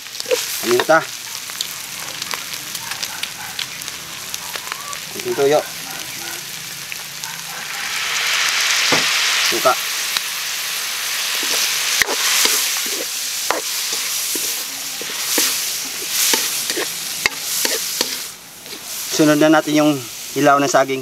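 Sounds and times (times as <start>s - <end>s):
food sizzling in a wok: 0.0s - 21.0s
spatula scraping a wok: 11.1s - 20.3s.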